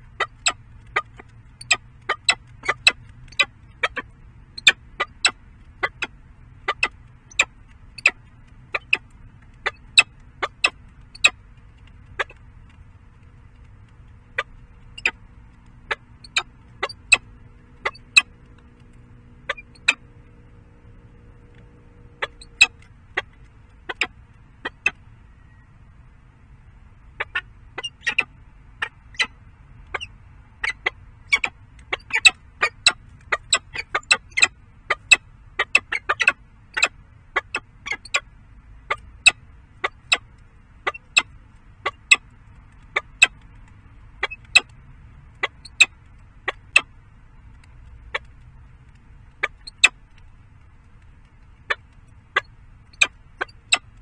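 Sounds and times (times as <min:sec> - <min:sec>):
beak clicking on small stones: 0:00.1 - 0:25.0.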